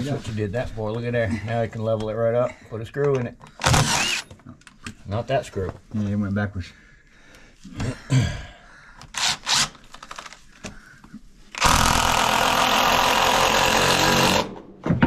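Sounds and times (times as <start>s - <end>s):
impact driver driving screw into wood: 3.6s - 4.4s, 9.1s - 9.8s, 11.6s - 15.0s.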